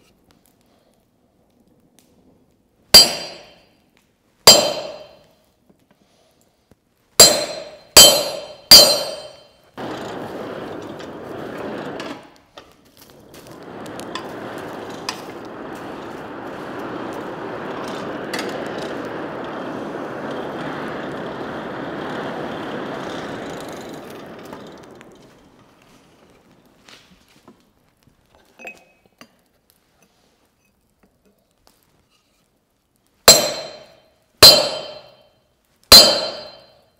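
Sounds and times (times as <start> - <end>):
fire crackles: 0.0 - 36.9
forge fire rushing: 0.6 - 3.6, 7.2 - 28.4, 33.3 - 35.3
hammer ringing on chisel: 3.0 - 3.6, 4.5 - 5.2, 7.2 - 9.6, 33.3 - 35.3, 35.9 - 36.8.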